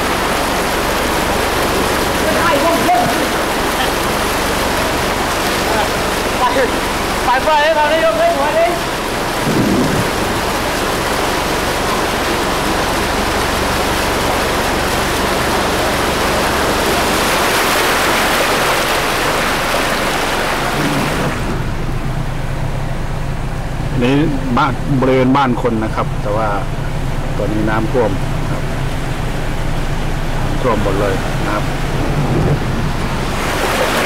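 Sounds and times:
car engine humming: 0.0s - 34.0s
loud rushing noise: 9.2s - 10.9s, 30.3s - 34.0s.

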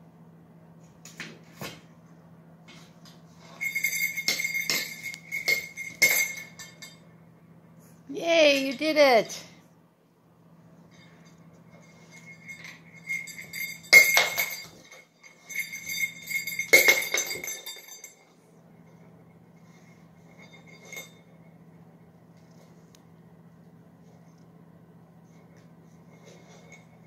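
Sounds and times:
low steady hum: 0.0s - 27.0s
jingle bell ball jingling: 3.4s - 7.0s, 11.1s - 18.3s.

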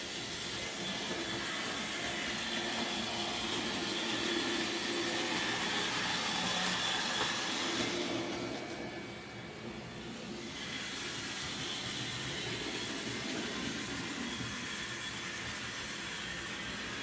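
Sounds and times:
model train motor whirring: 0.0s - 17.0s.

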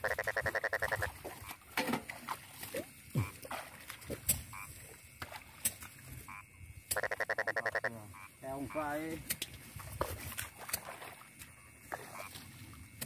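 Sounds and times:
frog trilling: 0.0s - 1.6s, 4.5s - 4.8s, 6.2s - 9.1s, 11.9s - 12.4s.

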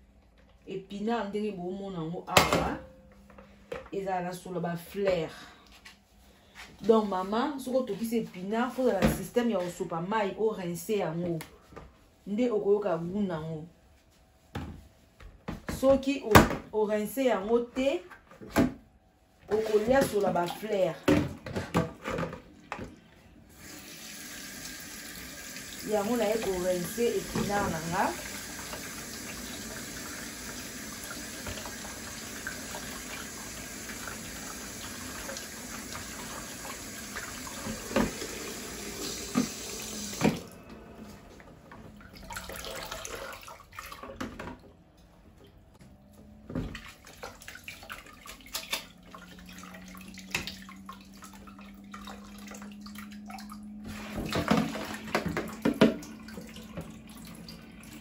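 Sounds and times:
tap water running onto colander: 23.6s - 40.4s.

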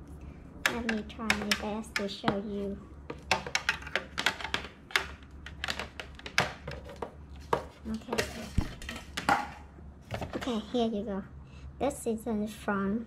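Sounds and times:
hands handling plastic fan: 3.0s - 10.5s.

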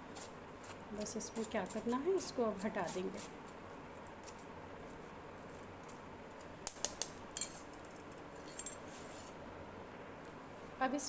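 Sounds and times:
metal spoon and strainer clinking: 7.4s - 7.8s.

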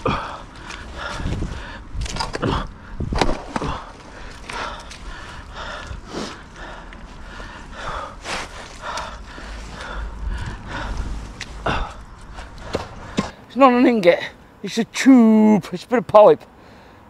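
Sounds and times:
heavy breathing: 0.0s - 13.4s, 16.5s - 17.0s
footsteps in wet mud: 3.2s - 12.8s.

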